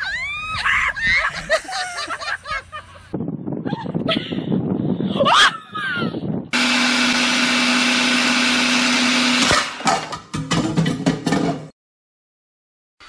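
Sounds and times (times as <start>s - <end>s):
small motor humming: 6.6s - 9.8s.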